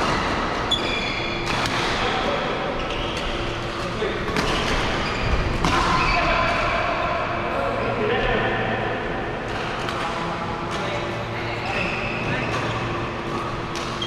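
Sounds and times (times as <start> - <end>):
shoes squeaking on court: 0.7 - 1.6, 4.5 - 5.5
rackets hitting shuttlecocks: 1.4 - 2.0.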